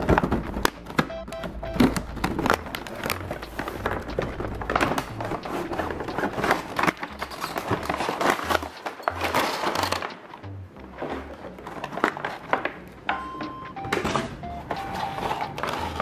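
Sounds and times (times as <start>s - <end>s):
plastic packaging crinkling: 0.0s - 10.4s
background music: 0.0s - 16.0s.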